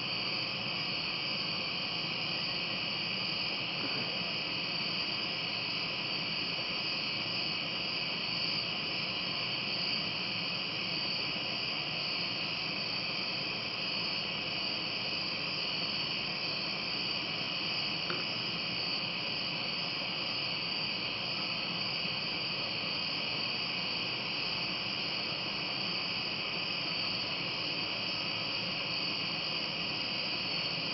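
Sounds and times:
night insects chirping: 0.0s - 30.9s.

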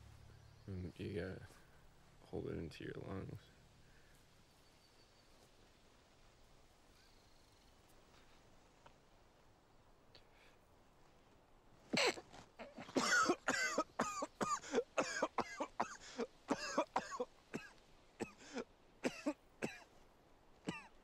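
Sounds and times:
man coughing hard: 12.0s - 19.9s, 20.7s - 21.0s.

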